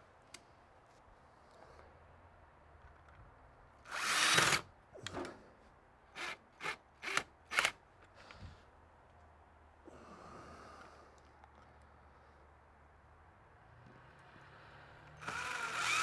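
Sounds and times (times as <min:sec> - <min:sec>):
cordless drill driving a screw: 0:03.9 - 0:04.6, 0:06.2 - 0:07.8, 0:15.2 - 0:16.0.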